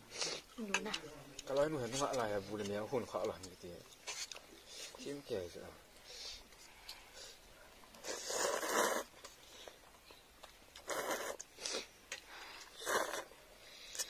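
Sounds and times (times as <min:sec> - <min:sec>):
people slurping noodles: 0:08.0 - 0:09.8, 0:10.8 - 0:14.0.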